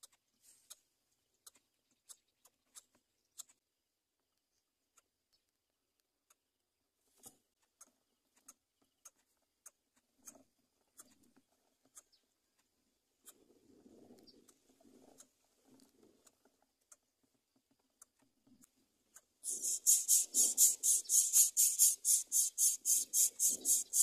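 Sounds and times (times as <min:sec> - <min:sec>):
soft low rustle: 0:00.2 - 0:00.9
faint ticks: 0:07.2 - 0:24.0.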